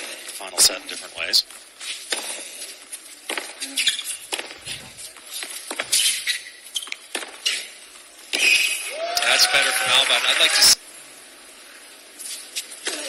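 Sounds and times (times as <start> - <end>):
shoe squeaks: 3.6 - 7.7, 8.4 - 8.8
crowd noise: 4.2 - 6.3, 7.9 - 10.8
racket striking tennis ball: 4.3 - 6.4.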